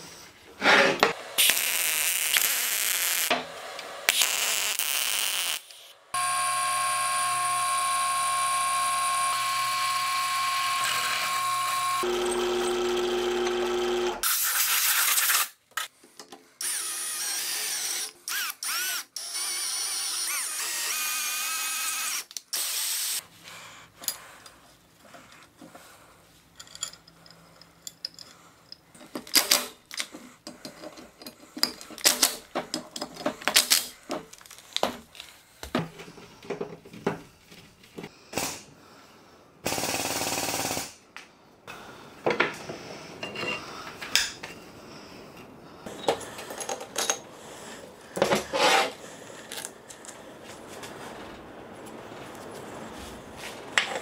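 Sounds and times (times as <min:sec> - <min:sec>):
cordless drill driving screws: 0:04.1 - 0:14.3, 0:16.6 - 0:23.2
drill press drilling steel: 0:06.2 - 0:14.2.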